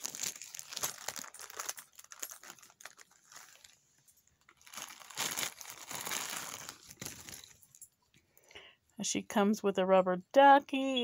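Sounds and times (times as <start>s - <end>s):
bag crinkling and rustling: 0.0s - 8.0s.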